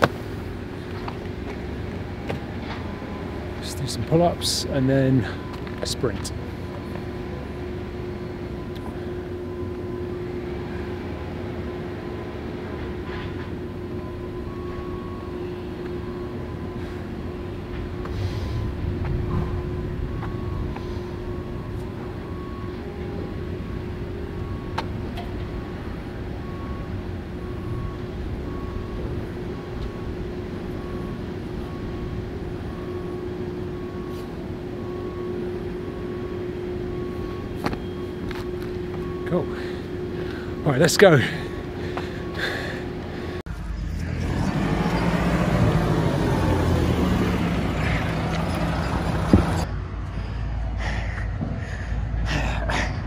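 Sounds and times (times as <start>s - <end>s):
low mechanical rumble: 0.0s - 53.0s
faint high beep: 32.7s - 44.2s.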